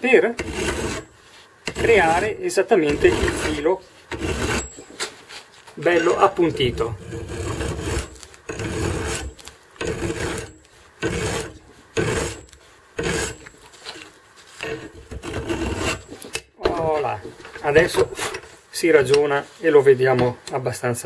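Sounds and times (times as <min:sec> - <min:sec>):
file rasping on steel: 0:00.3 - 0:04.8, 0:06.0 - 0:14.0, 0:14.6 - 0:16.3, 0:17.8 - 0:19.2.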